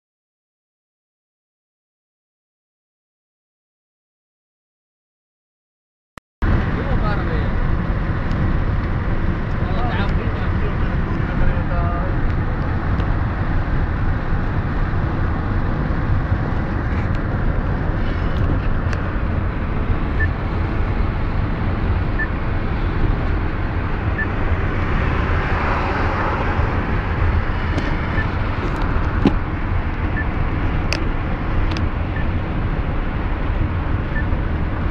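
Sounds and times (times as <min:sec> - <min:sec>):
car cabin road and engine noise: 0:06.4 - 0:34.9.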